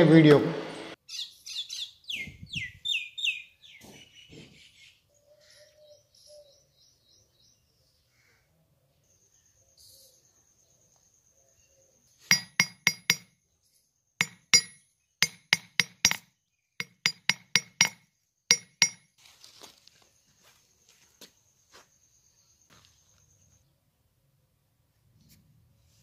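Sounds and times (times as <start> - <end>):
hammer striking metal on anvil: 12.3 - 13.3, 14.2 - 16.2, 16.8 - 19.1.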